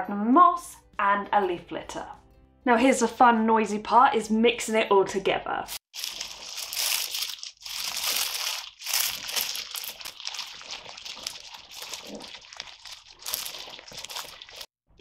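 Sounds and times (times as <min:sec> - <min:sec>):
leaves and soil crunching: 0:05.9 - 0:14.7.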